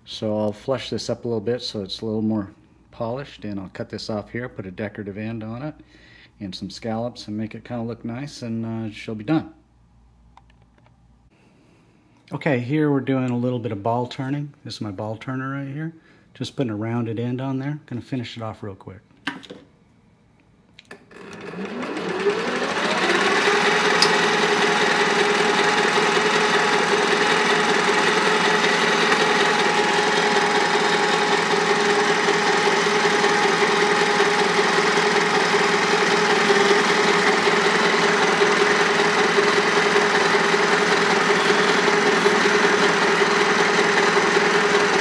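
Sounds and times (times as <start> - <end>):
lathe motor whine: 21.1 - 45.0.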